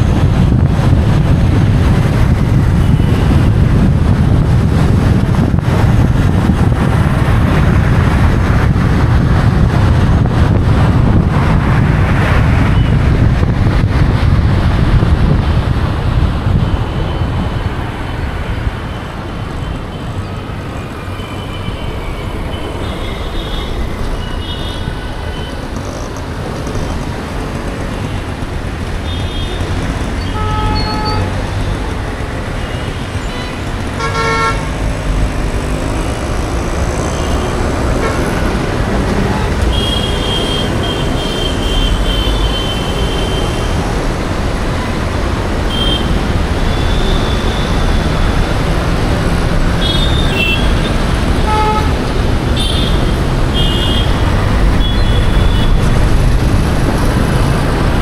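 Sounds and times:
traffic rumble: 0.0 - 58.0
vehicle horns tooting: 29.0 - 31.4, 32.6 - 34.7, 39.3 - 43.8, 45.7 - 48.0, 49.7 - 52.0, 52.6 - 55.8.

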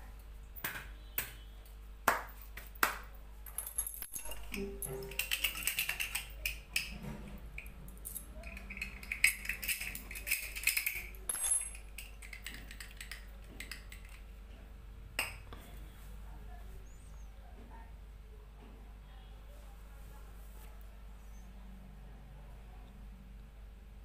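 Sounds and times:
keys jingling: 3.5 - 6.3, 8.0 - 12.4
metal clinking: 3.5 - 6.6, 7.6 - 13.9.

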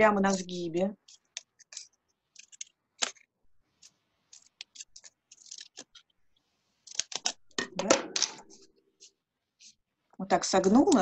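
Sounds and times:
scissors snipping paper: 0.3 - 3.2, 3.8 - 6.1, 6.8 - 7.4.

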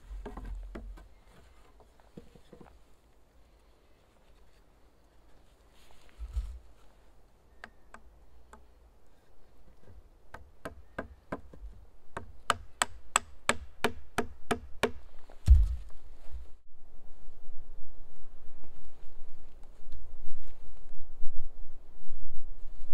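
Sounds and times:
dull thump: 15.3 - 16.5.

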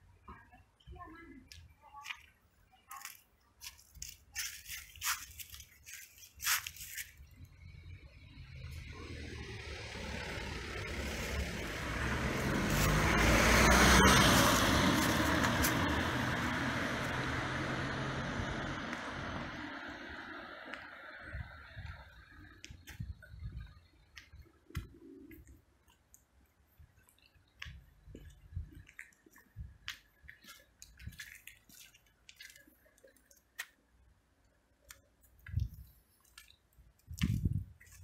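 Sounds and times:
traffic noise: 0.0 - 38.0
faint footsteps: 1.5 - 7.3, 26.8 - 33.8, 35.4 - 38.0.

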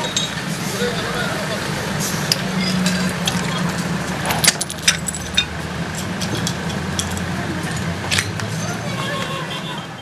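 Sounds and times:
vehicle engine running: 0.0 - 10.0
metallic clinks and rattles: 4.1 - 8.3.

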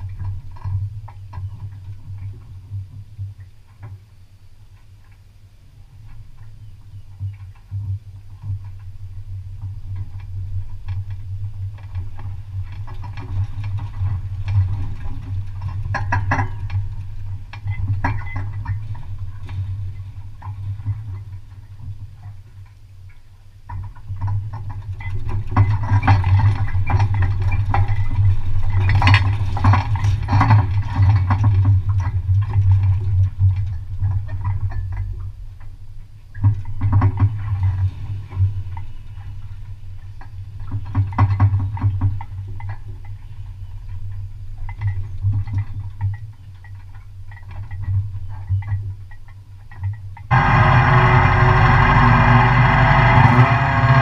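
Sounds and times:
trailer rumbling on road: 50.3 - 54.0.

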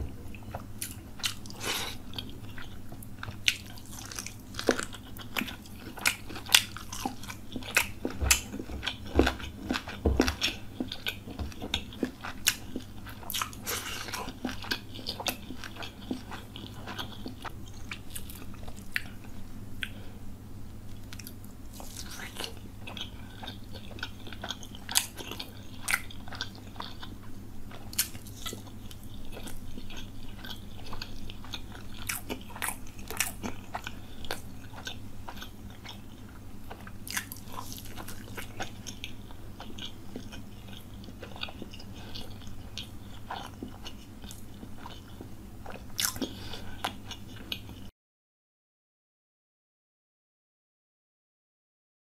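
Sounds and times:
steady low hum: 0.0 - 47.9.

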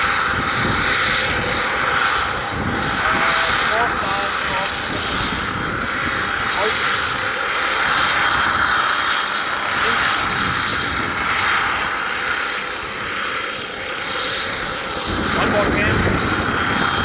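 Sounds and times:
drone rotor and motor noise: 0.0 - 17.0.

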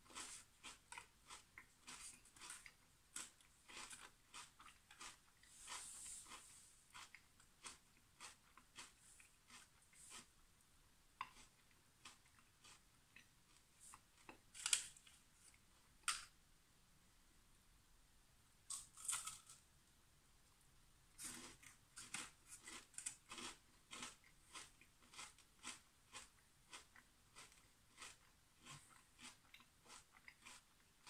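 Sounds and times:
crunchy chewing: 0.0 - 10.4, 11.2 - 15.6, 21.1 - 31.0.

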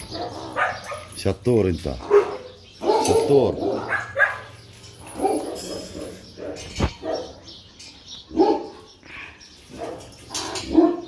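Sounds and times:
dog barking: 0.1 - 1.1, 2.0 - 7.4, 8.3 - 8.8, 9.7 - 10.1, 10.7 - 11.0.

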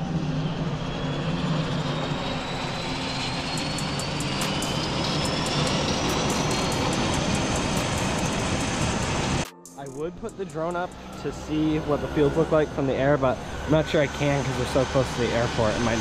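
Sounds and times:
light airplane engine running: 0.0 - 16.0
fast sharp ticking: 3.5 - 11.5.

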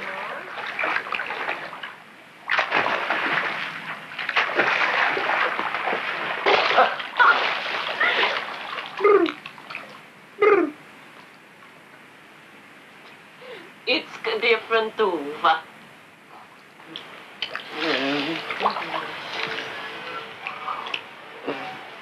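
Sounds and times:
water splashing and sloshing: 0.0 - 10.4, 16.4 - 21.1.

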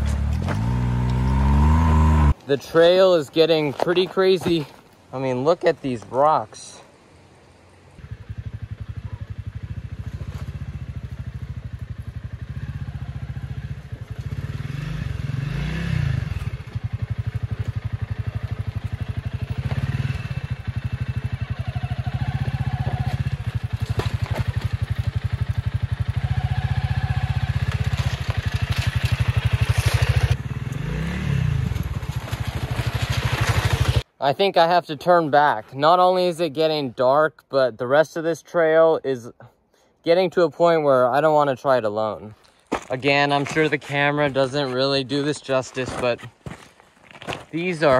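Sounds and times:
motorcycle engine revving: 0.0 - 2.4, 8.0 - 34.1.

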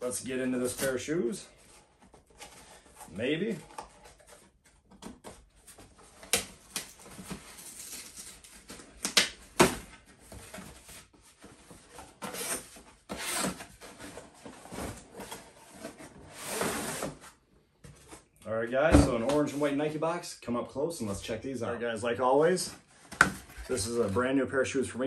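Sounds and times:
cardboard scraping and rustling: 9.7 - 18.3.

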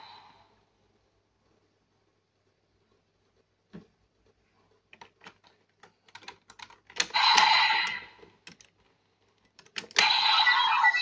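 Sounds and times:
electronic toy sound effect: 10.0 - 11.0.

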